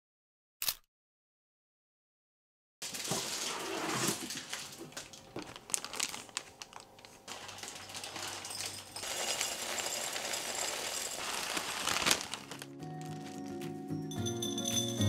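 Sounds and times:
plastic bag crinkling: 0:02.8 - 0:13.6
oats pouring into glass jar: 0:07.3 - 0:13.3.

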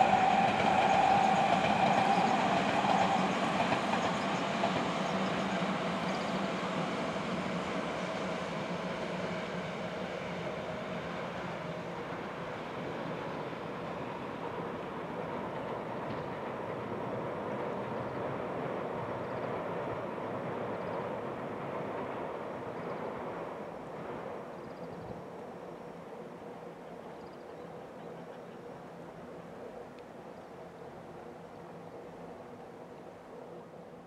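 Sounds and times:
train wheels rumbling on rails: 0:00.0 - 0:26.8.

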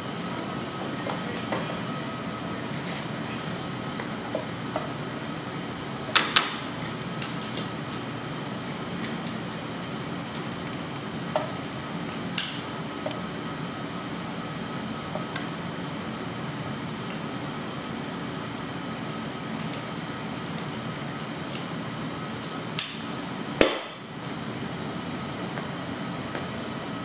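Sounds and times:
steady background hum: 0:00.0 - 0:27.0.

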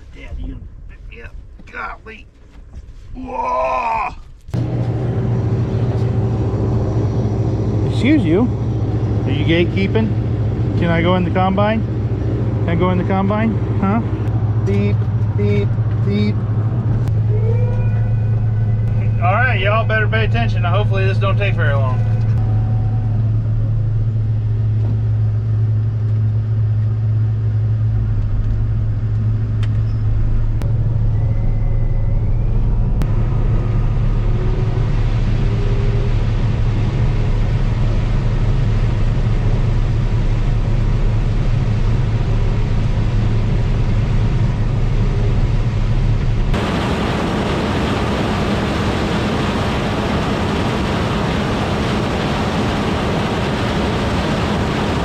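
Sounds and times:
combine engine drone inside cab: 0:04.4 - 0:55.0
combine harvester from outside: 0:04.5 - 0:55.0.

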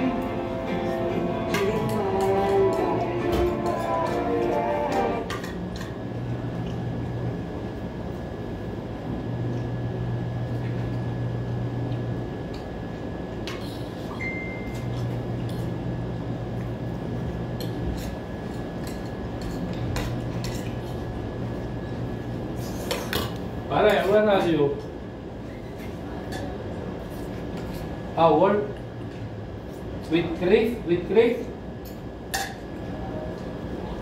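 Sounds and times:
low room hum: 0:00.0 - 0:34.0
spoon and dishes clinking: 0:31.9 - 0:32.6.

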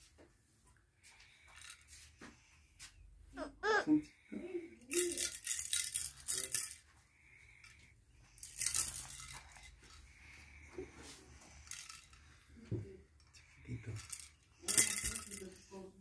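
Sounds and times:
plastic toy rattle shaken: 0:01.4 - 0:02.1, 0:04.8 - 0:06.8, 0:07.6 - 0:10.4, 0:11.3 - 0:15.8.

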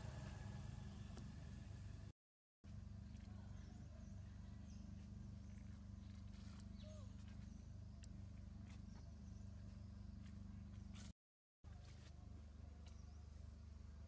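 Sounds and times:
faint low hum: 0:02.7 - 0:11.1.

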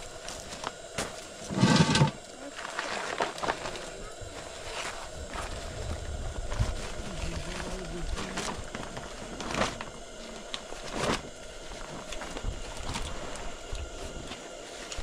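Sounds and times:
plastic tarp rustling: 0:01.6 - 0:11.3.

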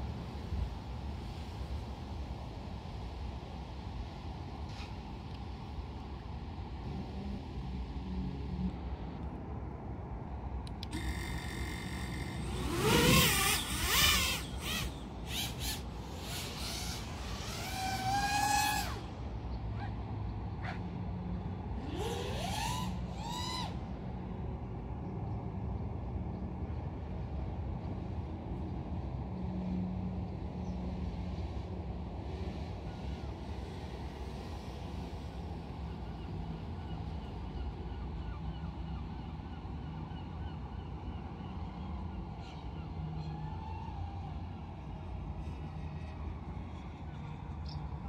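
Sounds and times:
drone motors whining and whirring: 0:10.5 - 0:24.5.

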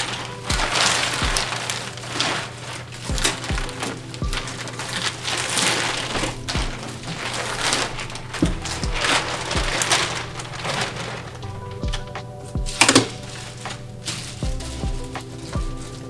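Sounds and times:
plastic bag crinkling: 0:00.0 - 0:16.0
background music with drum thumps: 0:00.5 - 0:01.5, 0:03.1 - 0:04.6, 0:05.9 - 0:07.3, 0:07.9 - 0:10.6, 0:11.5 - 0:16.0.

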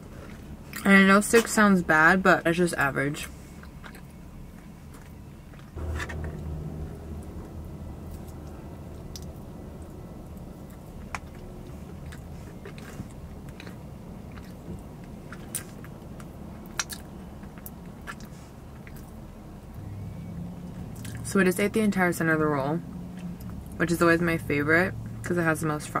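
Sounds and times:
low hum: 0:05.8 - 0:15.2
person chewing: 0:10.7 - 0:19.1.

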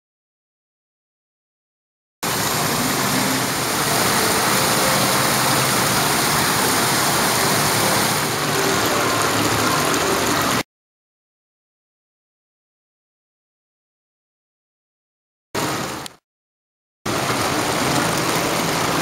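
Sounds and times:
falling water rushing: 0:02.2 - 0:10.6, 0:17.1 - 0:19.0.

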